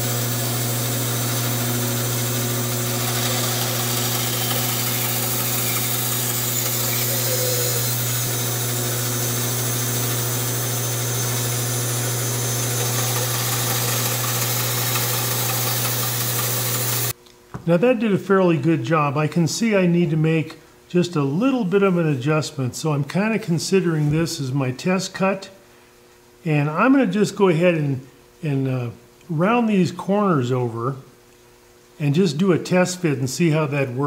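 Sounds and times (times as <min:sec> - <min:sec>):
bandsaw cutting wood: 0:00.0 - 0:17.1
bandsaw humming: 0:00.0 - 0:17.1.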